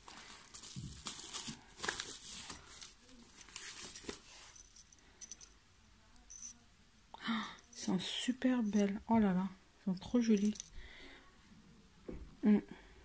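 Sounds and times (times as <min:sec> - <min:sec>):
bubble wrap crinkling: 0:00.0 - 0:04.7.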